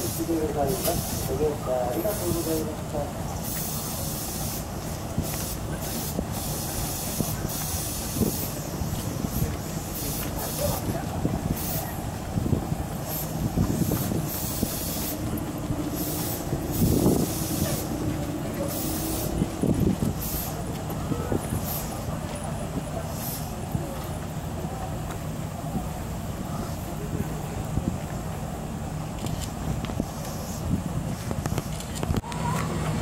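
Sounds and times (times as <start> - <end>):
train low hum: 0.0 - 33.0
short air hisses: 3.4 - 10.8, 11.5 - 12.0, 13.0 - 15.2, 18.7 - 19.4, 20.2 - 20.6, 21.5 - 22.0.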